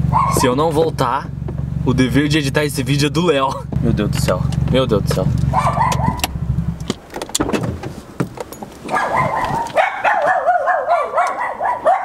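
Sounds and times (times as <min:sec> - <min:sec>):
high-pitched dog barking: 0:00.0 - 0:00.5, 0:05.5 - 0:06.3, 0:08.9 - 0:12.0.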